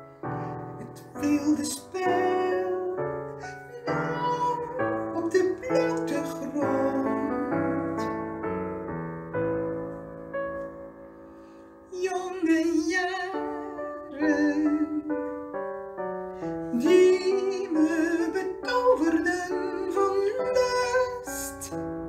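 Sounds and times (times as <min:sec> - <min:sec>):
keyboard chords: 0:00.0 - 0:22.0
woman singing with vibrato: 0:14.1 - 0:15.0.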